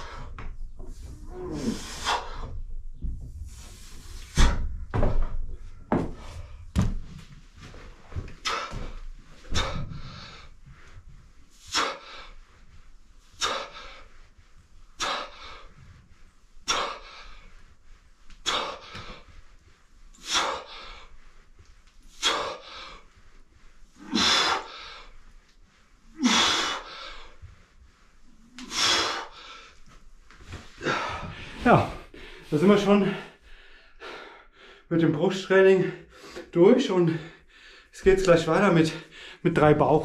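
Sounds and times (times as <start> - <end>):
man grunting: 30.8 - 32.0.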